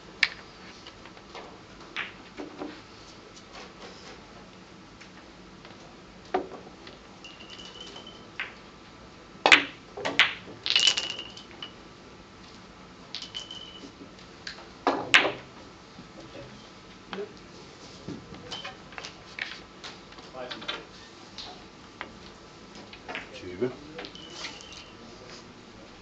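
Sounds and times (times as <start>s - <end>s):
billiard balls clicking: 0.2s - 2.7s, 5.6s - 8.7s, 9.4s - 11.8s, 13.1s - 15.5s, 18.5s - 23.4s, 24.0s - 24.9s.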